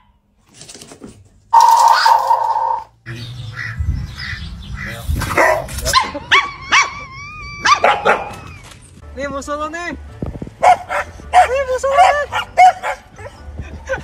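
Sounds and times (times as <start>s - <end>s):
small dog yipping: 5.4s - 8.8s.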